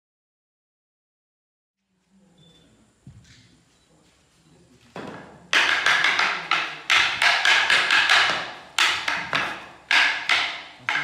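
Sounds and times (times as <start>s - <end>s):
wooden sticks clacking: 5.5s - 11.0s.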